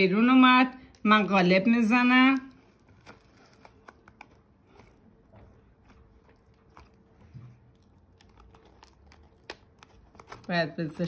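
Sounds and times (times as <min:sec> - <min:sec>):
soft cake crunching: 0:00.1 - 0:11.0.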